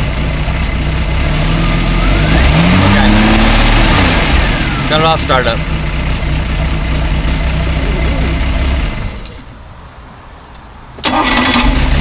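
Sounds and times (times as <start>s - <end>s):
engine winding down: 0.0s - 9.4s, 11.0s - 12.0s
boat engine idling: 3.0s - 9.5s
engine restarting: 11.0s - 12.0s.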